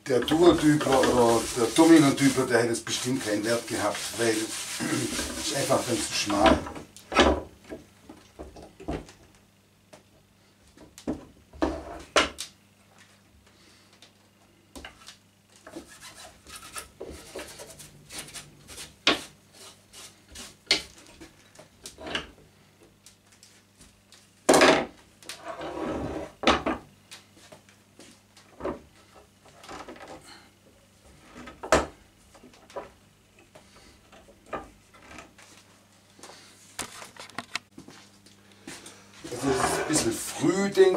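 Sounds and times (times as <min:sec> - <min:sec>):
rag rubbing wooden boards: 0:00.2 - 0:06.8, 0:15.6 - 0:20.8, 0:39.2 - 0:40.5.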